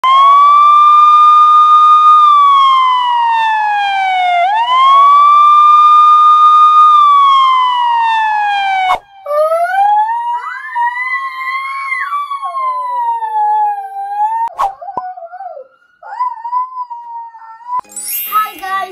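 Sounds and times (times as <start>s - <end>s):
emergency siren wailing: 0.0s - 17.8s
weak wavering two-pitch wail: 8.8s - 18.4s.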